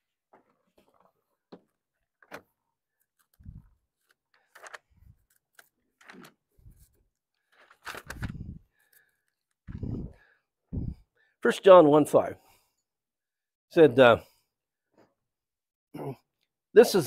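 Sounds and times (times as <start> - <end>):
paper rustling: 2.2 - 9.9.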